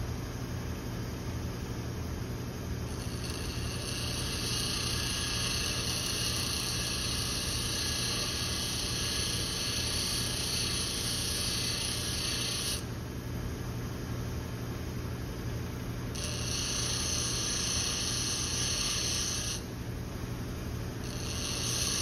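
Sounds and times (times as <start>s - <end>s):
bench grinder motor humming: 2.9s - 12.8s, 16.1s - 19.6s, 21.0s - 22.0s
metal grinding hiss: 16.2s - 19.6s, 21.1s - 22.0s.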